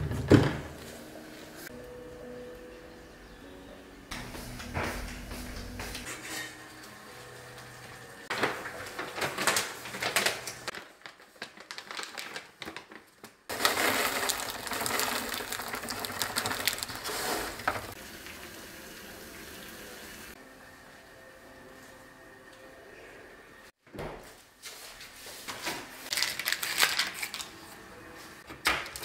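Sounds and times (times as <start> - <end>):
kitchen clatter: 8.2 - 10.8, 13.5 - 18.0
corn kernels poured into metal pot: 13.5 - 18.0
pot boiling: 13.5 - 20.4.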